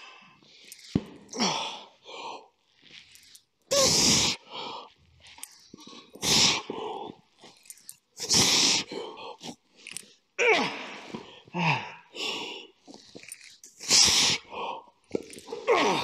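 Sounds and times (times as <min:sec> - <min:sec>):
man grunting: 0:10.4 - 0:12.0, 0:15.5 - 0:16.0.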